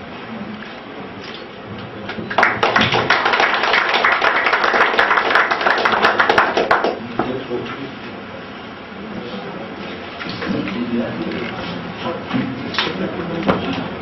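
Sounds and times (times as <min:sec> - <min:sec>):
small group applauding: 0:02.0 - 0:07.2.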